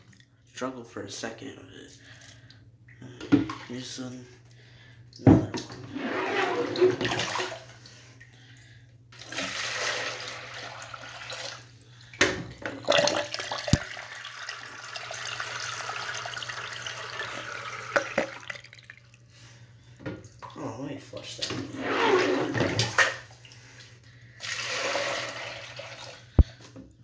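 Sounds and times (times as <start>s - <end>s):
toilet flushing: 5.5s - 8.0s, 9.2s - 19.2s, 21.2s - 23.5s, 24.4s - 26.4s.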